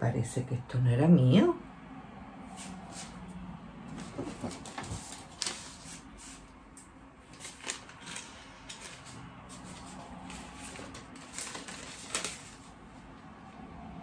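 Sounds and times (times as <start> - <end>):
packaging rustling: 3.9 - 6.5, 7.2 - 12.8.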